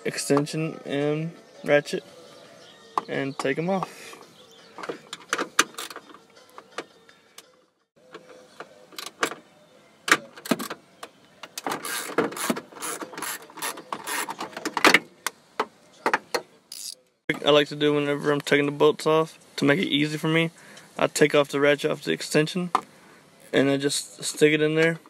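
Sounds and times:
ratchet clicking: 11.8s - 14.3s.

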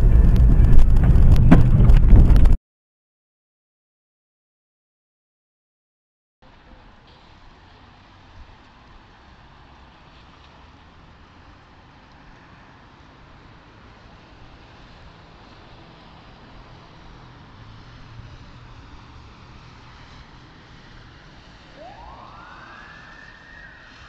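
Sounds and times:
traffic and engine hum: 0.0s - 2.6s, 6.4s - 24.0s
emergency vehicle siren wailing: 13.8s - 24.0s.

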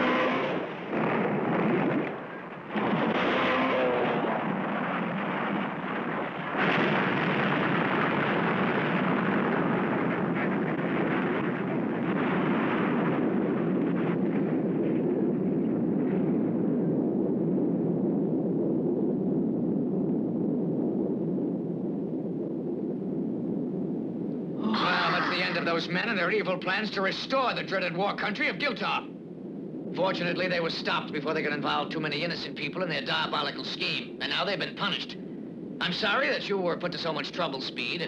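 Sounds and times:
cartoon explosion blast and rumble: 0.0s - 21.2s, 24.6s - 26.3s.

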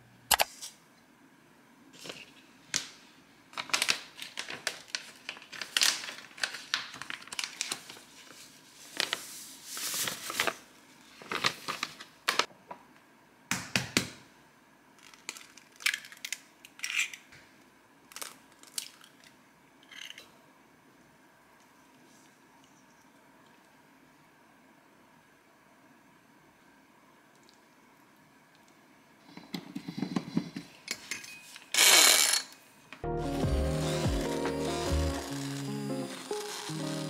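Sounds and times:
paper packet rustling: 3.5s - 12.5s, 33.9s - 37.0s.

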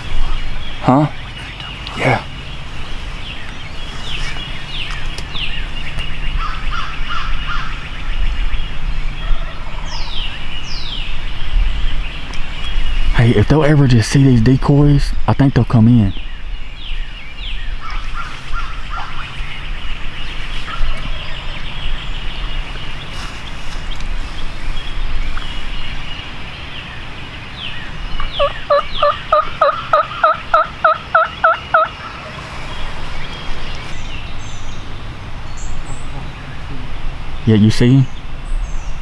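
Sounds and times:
turkey yelping: 9.3s - 10.0s, 17.8s - 19.4s, 28.2s - 32.6s.

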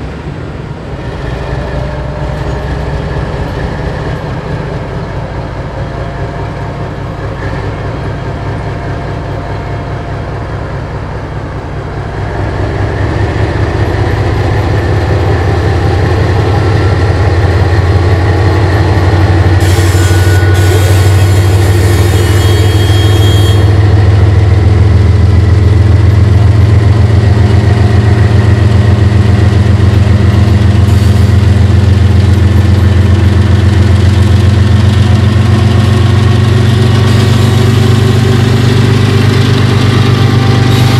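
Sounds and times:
diesel locomotive engine: 0.0s - 40.9s
faint high squeal: 19.6s - 23.8s.

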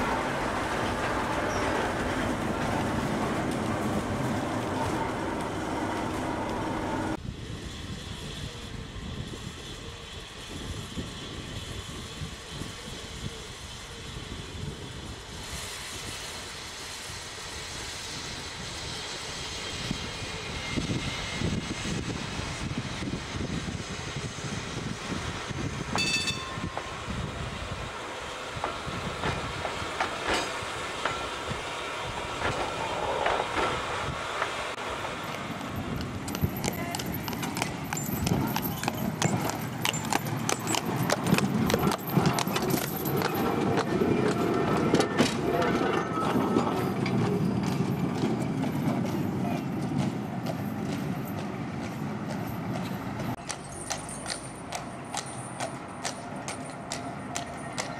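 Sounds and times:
electric tram rumbling along track: 0.0s - 57.9s
brief high tone: 26.0s - 26.8s
wheels clicking over rail joints: 28.5s - 57.9s.

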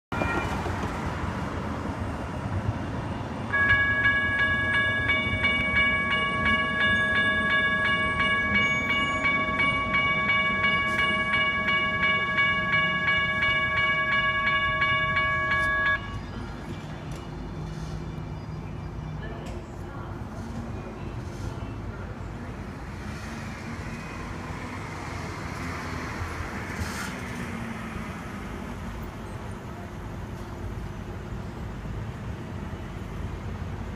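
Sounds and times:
railroad crossing bells ringing: 2.6s - 17.4s.

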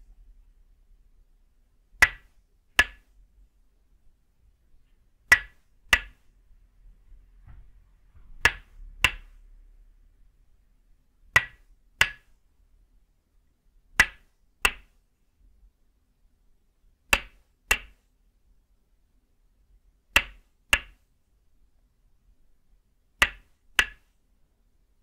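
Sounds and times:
wooden mallet knocking on stake: 11.4s - 12.3s.

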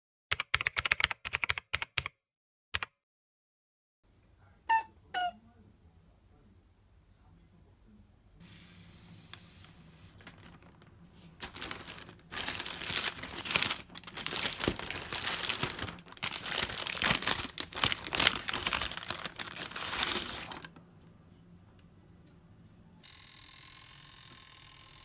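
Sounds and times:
plastic bag rustling: 9.5s - 20.8s.

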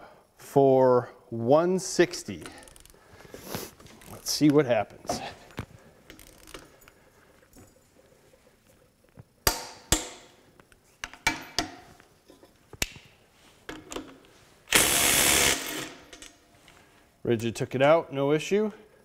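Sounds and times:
impact wrench hammering: 9.4s - 10.4s, 14.7s - 16.3s.

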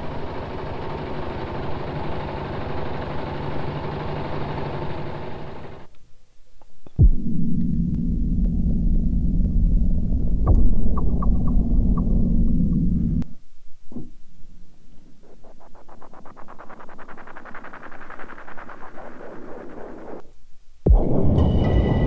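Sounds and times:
loud low hit with ringing tones: 7.0s - 13.2s
low explosion-like rumble: 7.0s - 13.3s
airy stuttering synth texture: 14.8s - 20.3s.

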